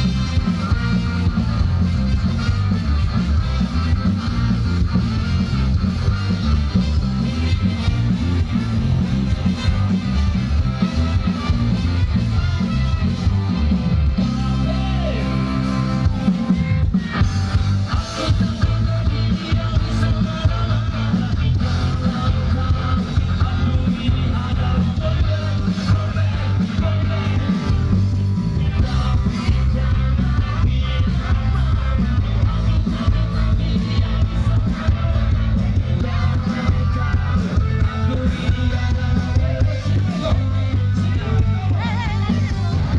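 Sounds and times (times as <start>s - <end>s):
electric guitar: 0.0s - 42.9s
live rock band: 0.0s - 42.9s
person singing: 17.9s - 28.0s, 28.6s - 42.9s.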